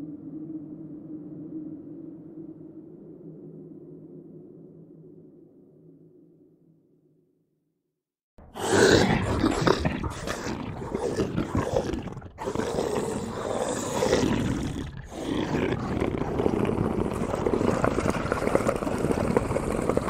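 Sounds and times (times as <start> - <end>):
roaring growl: 8.4 - 20.0.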